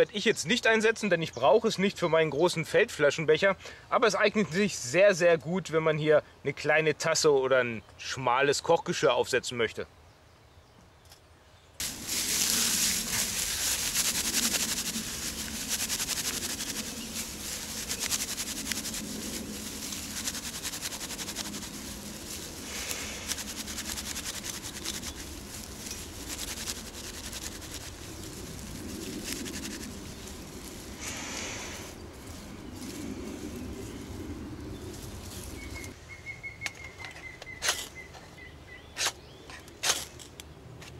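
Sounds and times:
dry grass crackling and rustling: 11.8s - 36.0s.

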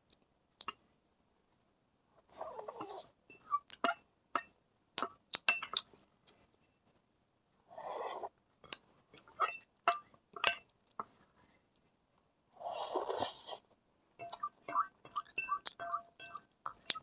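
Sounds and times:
slurping noodles: 2.3s - 3.1s, 7.8s - 8.3s, 12.6s - 13.6s
fork clinking against a bowl: 3.3s - 6.0s, 8.6s - 11.2s, 14.2s - 17.0s.

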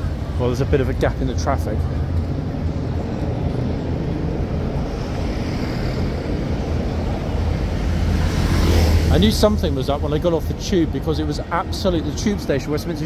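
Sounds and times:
road traffic rumble: 0.0s - 13.0s.

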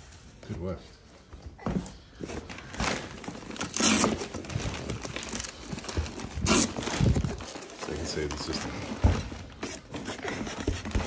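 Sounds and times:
rustling and scraping against foam: 2.0s - 11.0s.

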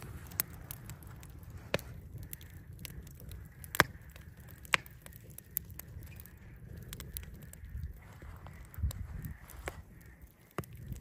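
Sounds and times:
sharp pops of fire: 0.0s - 11.0s
wood fire crackling: 0.0s - 11.0s.

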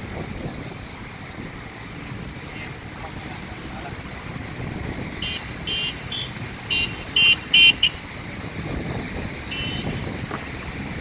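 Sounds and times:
heavy truck traffic rumble: 0.0s - 11.0s
vehicle horn toots: 5.2s - 8.0s, 9.5s - 10.1s.

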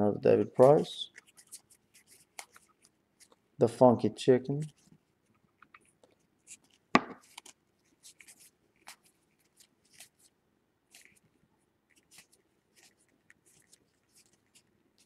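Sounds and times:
trading cards flipped by hand: 5.6s - 10.3s.

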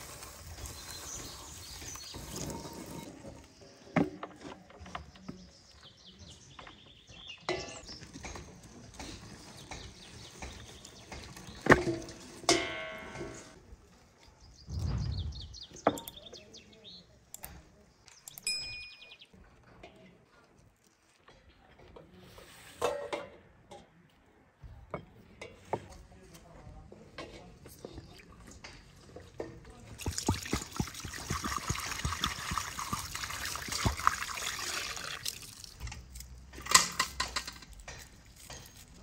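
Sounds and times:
small birds chirping: 0.0s - 4.0s, 4.6s - 11.8s, 13.4s - 19.4s
knocks and clinks on metal bowl: 11.9s - 13.5s.

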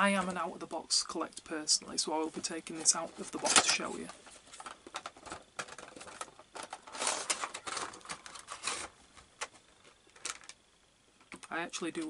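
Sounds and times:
card and plastic crinkling: 2.7s - 10.6s
packaging rustle: 2.8s - 10.6s.

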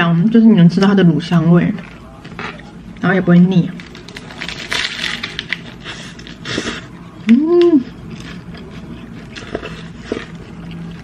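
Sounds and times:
person eating crunching: 3.7s - 11.0s.

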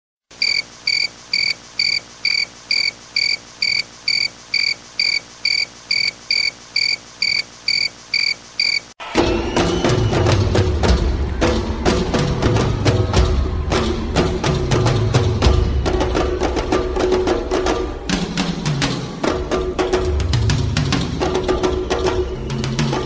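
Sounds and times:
cricket chirping: 0.3s - 8.9s
percussive music with knocking beats: 9.1s - 23.0s.

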